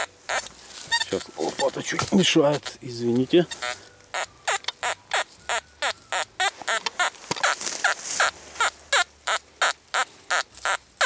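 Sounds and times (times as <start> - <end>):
metal detector beeps: 0.0 - 8.3.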